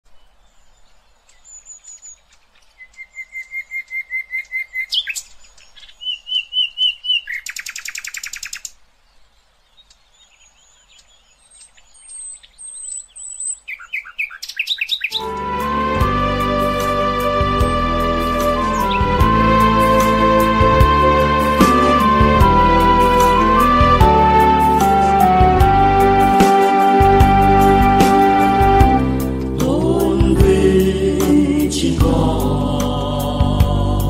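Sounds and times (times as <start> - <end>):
birds singing: 0.1 - 15.3
music: 15.2 - 34.0
buzzy bird trill: 16.3 - 20.6.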